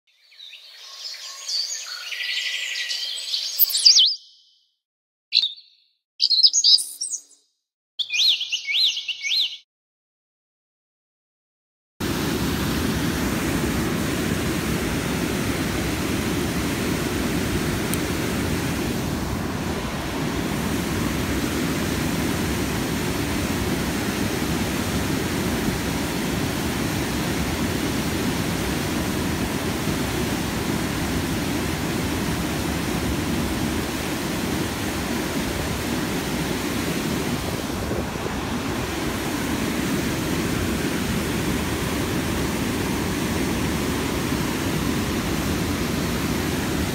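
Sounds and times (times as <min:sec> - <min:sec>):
whitewater rushing over dam: 0:12.0 - 0:46.9.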